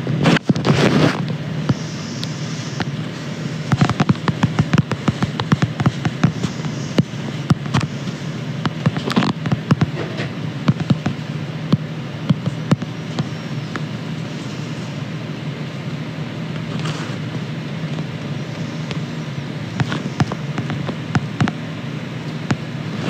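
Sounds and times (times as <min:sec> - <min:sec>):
steady low hum: 0:00.0 - 0:23.0
phone microphone handling crackles: 0:00.2 - 0:03.0, 0:03.6 - 0:11.2, 0:19.7 - 0:21.6.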